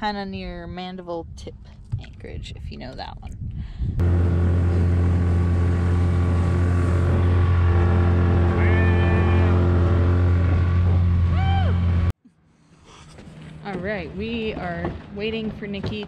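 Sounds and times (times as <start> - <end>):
wind: 0.0 - 16.0
outboard motor drone: 4.0 - 12.1.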